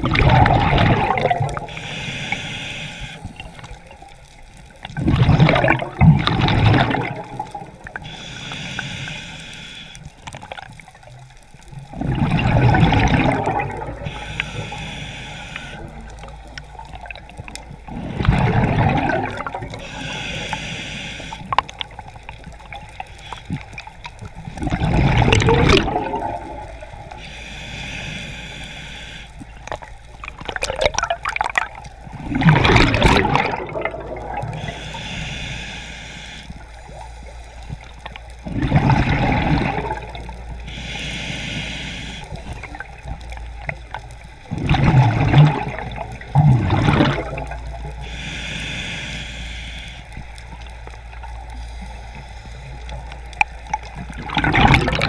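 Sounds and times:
exhaled bubbles rushing: 0.0 - 1.8, 4.8 - 8.0, 11.8 - 14.2, 15.8 - 19.8, 24.3 - 27.2, 29.6 - 34.8, 37.8 - 40.6, 42.4 - 48.0, 53.7 - 55.0
diver inhaling through regulator: 1.6 - 3.8, 8.0 - 10.2, 13.0 - 16.4, 17.9 - 21.6, 25.2 - 29.5, 34.2 - 37.9, 39.3 - 42.9, 46.8 - 50.6, 51.6 - 53.4.

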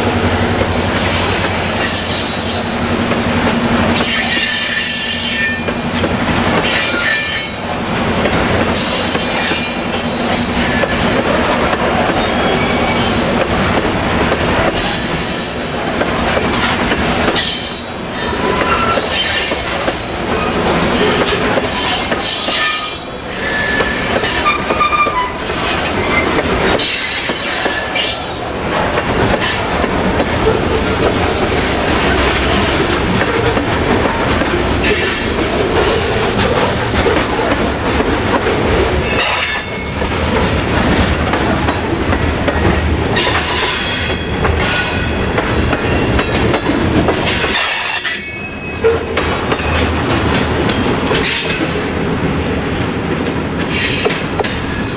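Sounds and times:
clickety-clack over rail joints: 0.0 - 54.9
steel wheels rumbling on rail: 0.0 - 54.9.

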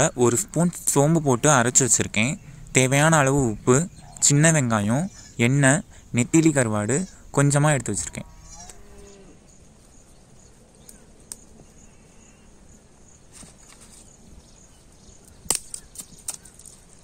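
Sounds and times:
insects chirping: 0.0 - 16.6
twigs cracking: 10.1 - 11.5, 15.2 - 17.0.

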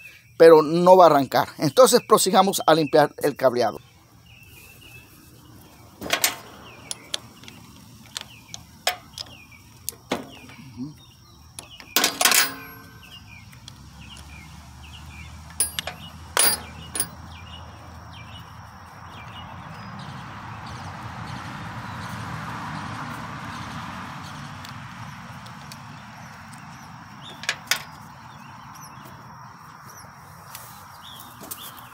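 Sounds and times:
metal clank ringing: 12.0 - 13.2, 15.5 - 17.2
wrench clicking on metal: 15.5 - 17.2.

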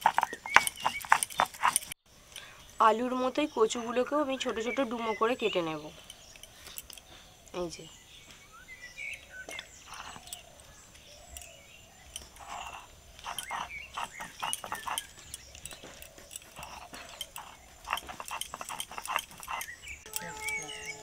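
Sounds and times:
knife cutting and scraping taro: 0.0 - 2.0, 12.2 - 21.0.

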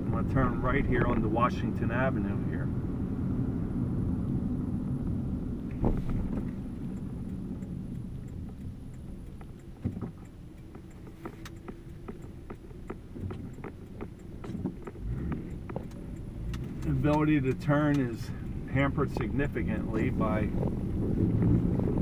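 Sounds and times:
tyres and engine rumble: 0.0 - 22.0
light clicks and ticks: 5.6 - 22.0.

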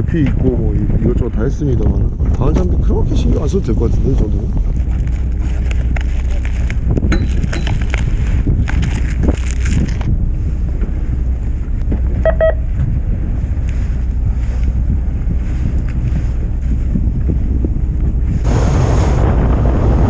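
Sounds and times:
steady low rumble: 0.0 - 20.0
wind on microphone: 0.0 - 20.0
crackling handling noise: 4.0 - 16.8
electronic beep: 12.2 - 12.7.

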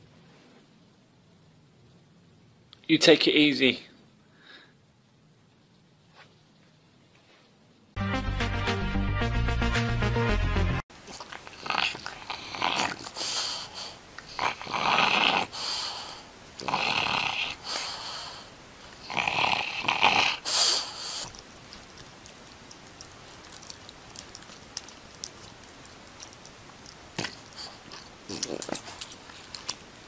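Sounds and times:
dog grunting and huffing: 11.1 - 21.4, 27.1 - 29.2.

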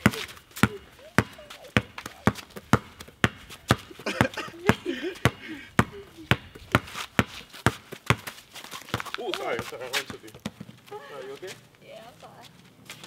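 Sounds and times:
faint voices: 0.0 - 2.5
basketball dribbling: 0.0 - 10.8.

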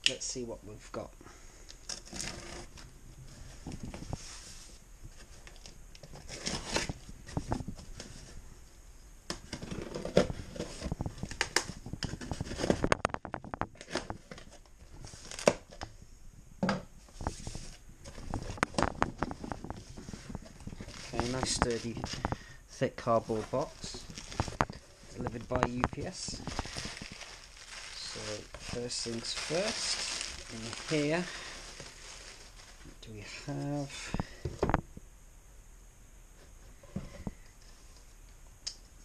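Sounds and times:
cardboard scraping and rustling: 2.0 - 8.4, 9.4 - 15.8, 17.0 - 32.9
tape tearing: 5.4 - 7.0, 23.1 - 32.8.

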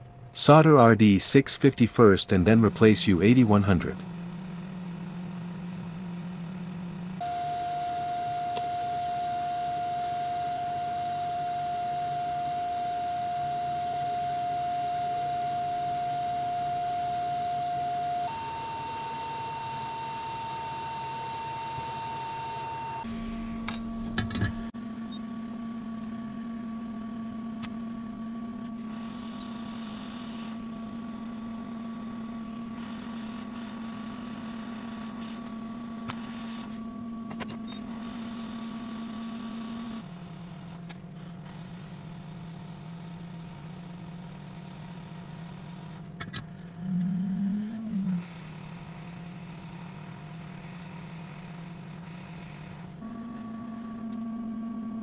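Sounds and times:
hot-air station humming and hissing: 0.0 - 54.9
wavering tone: 7.2 - 25.2.

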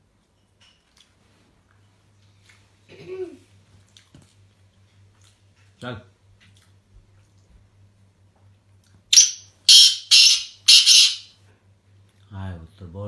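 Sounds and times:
francolin harsh calls: 9.1 - 11.3.

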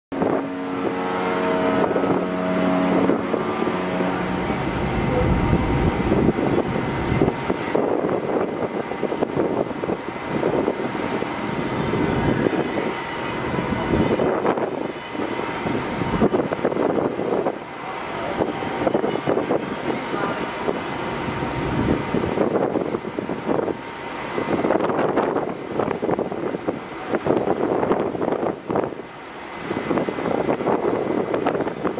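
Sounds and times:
steady tone of held pitches: 0.1 - 23.0
harbour background noise: 0.1 - 31.9
wind buffeting microphone: 0.1 - 31.9.

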